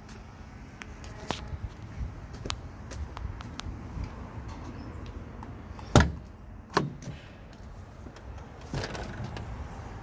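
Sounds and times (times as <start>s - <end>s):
truck door latch clunk: 5.9s - 7.2s.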